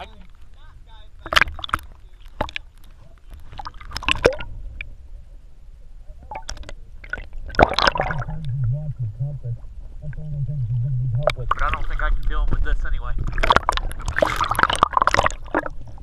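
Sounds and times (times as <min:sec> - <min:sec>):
water splashing and sloshing: 0:00.0 - 0:05.5, 0:06.1 - 0:08.5, 0:11.2 - 0:16.0
low wavering hum: 0:02.6 - 0:16.0.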